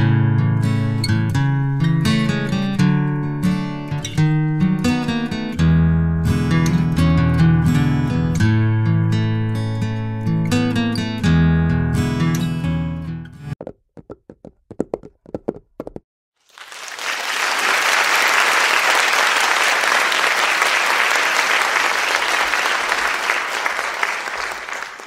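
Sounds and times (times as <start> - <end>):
applause: 16.4 - 25.0.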